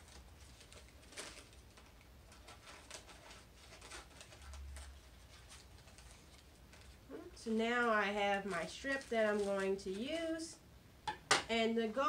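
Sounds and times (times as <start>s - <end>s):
paper rustling: 0.0s - 7.0s, 7.8s - 10.1s.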